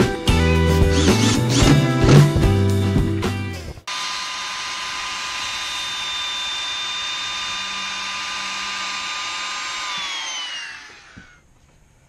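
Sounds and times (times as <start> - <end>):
circular saw cutting wood: 0.8 - 2.4, 3.9 - 11.4.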